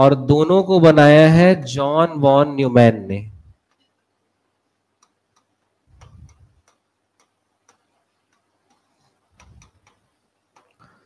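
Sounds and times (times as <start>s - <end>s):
stylus tapping on screen: 5.0s - 10.9s.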